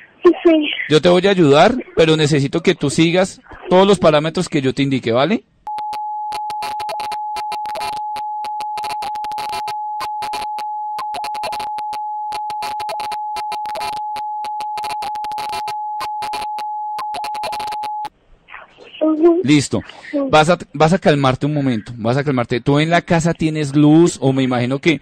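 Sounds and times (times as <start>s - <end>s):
crackling clicks: 5.7s - 18.1s
steady electronic tone: 5.7s - 18.1s.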